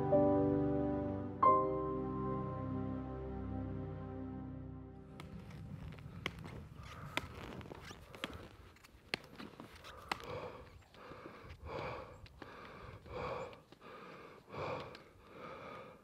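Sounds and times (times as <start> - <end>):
person breathing heavily: 6.0 - 8.7, 9.7 - 16.0.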